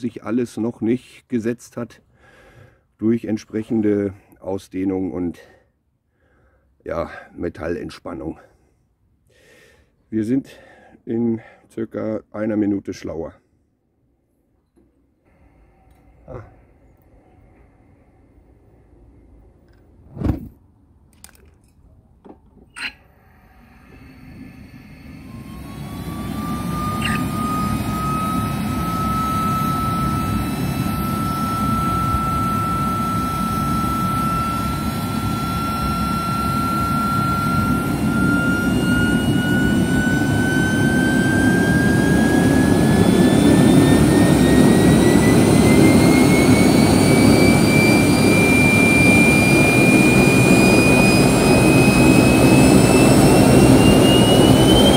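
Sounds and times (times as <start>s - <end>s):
turbojet engine rushing whine: 22.7s - 54.9s.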